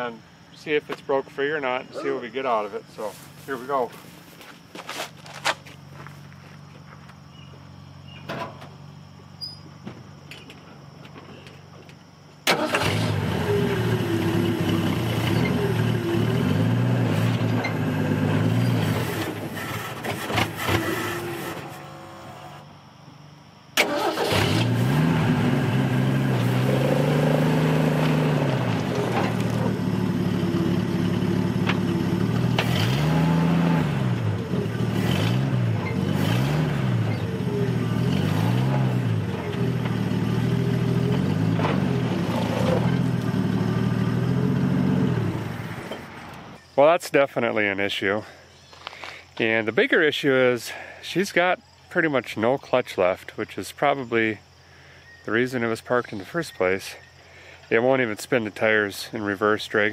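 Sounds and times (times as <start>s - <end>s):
truck engine starting and revving: 12.4s - 22.7s, 23.8s - 46.6s.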